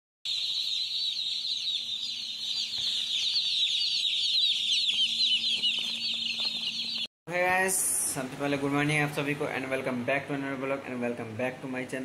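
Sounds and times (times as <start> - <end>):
chicks peeping: 0.3 - 7.1.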